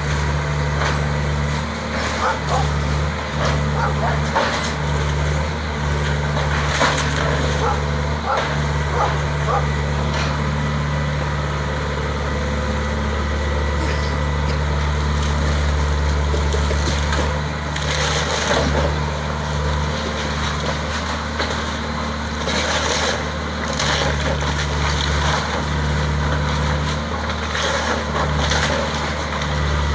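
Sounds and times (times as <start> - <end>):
excavator diesel engine running: 0.0 - 29.9
wood cracking: 6.0 - 9.2, 15.1 - 21.7.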